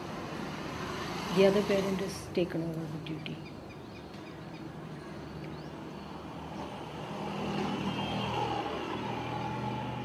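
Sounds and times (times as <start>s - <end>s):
vehicle engine passing by: 0.0s - 2.3s, 6.1s - 10.0s.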